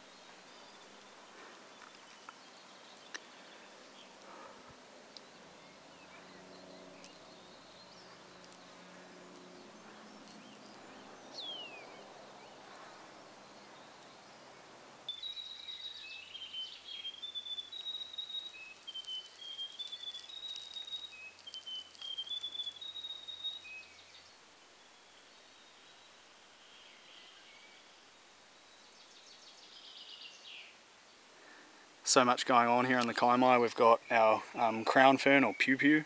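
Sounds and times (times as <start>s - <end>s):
faint forest ambience: 0.0s - 36.0s
bird whistling calls: 15.1s - 24.1s.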